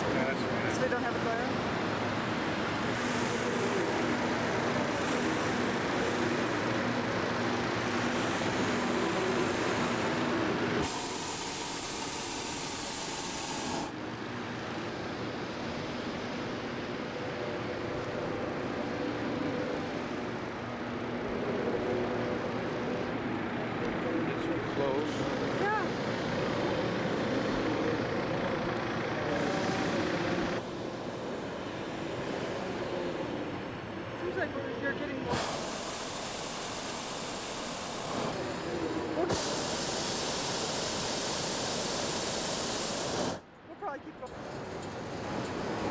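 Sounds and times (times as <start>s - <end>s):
propane burner hissing blast: 1.8s - 14.0s, 35.2s - 43.5s.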